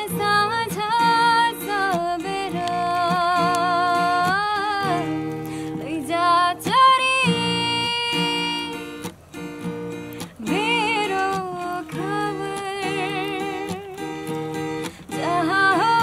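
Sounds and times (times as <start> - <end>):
woman singing: 0.0 - 9.1, 10.2 - 16.0
strummed acoustic guitar: 0.0 - 16.0.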